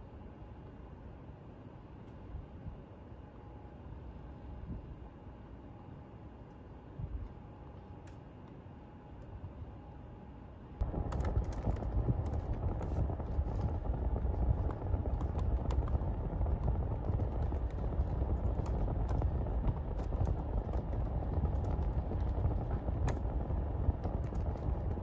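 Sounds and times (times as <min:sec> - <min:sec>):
laptop keyboard clicks: 0:10.8 - 0:13.7, 0:24.0 - 0:24.9
steady low rumble: 0:10.8 - 0:25.0.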